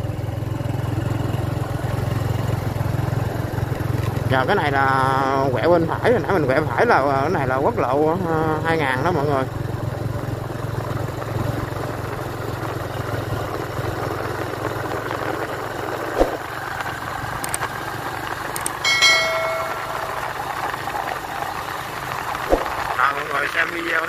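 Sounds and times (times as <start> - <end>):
vehicle engine running: 0.0 - 18.8
road noise: 13.4 - 24.0
sharp click: 18.6 - 20.3
short bell-like ding: 18.7 - 20.7.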